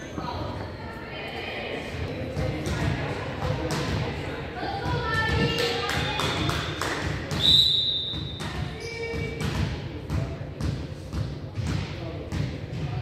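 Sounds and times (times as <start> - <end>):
ball bouncing on hard court: 2.4 - 4.1, 4.8 - 13.0.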